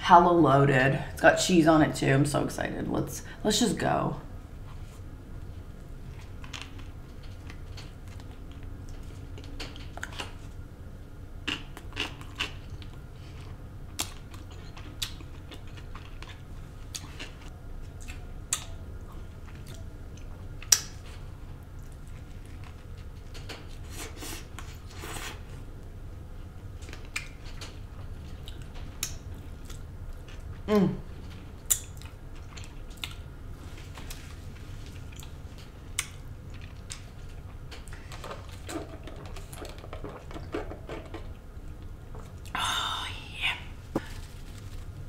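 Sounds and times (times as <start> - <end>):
chewing a burger: 11.4 - 25.6, 31.2 - 33.3, 34.0 - 42.5.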